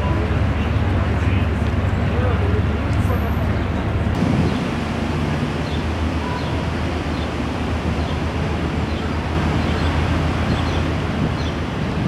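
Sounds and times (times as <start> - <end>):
low even rumble: 3.5 - 12.0.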